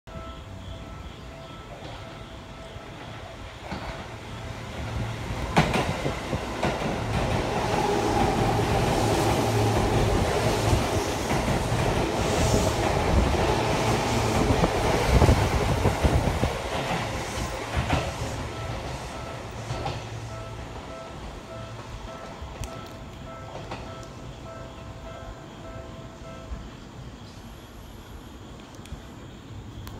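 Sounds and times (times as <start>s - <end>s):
electric train rumbling past: 0.1s - 29.8s.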